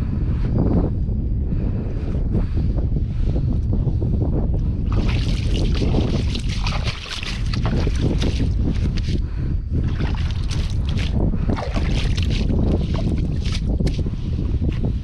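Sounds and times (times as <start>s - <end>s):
wind buffeting microphone: 0.0s - 15.0s
water splashing against hull: 4.8s - 14.8s.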